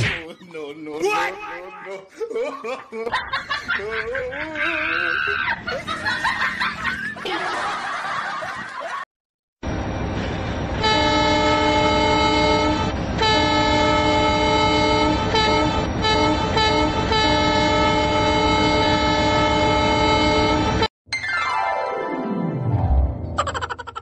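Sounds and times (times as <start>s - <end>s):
train rumbling: 3.2s - 8.9s, 9.6s - 20.9s
multi-tone train horn blast: 10.8s - 20.9s.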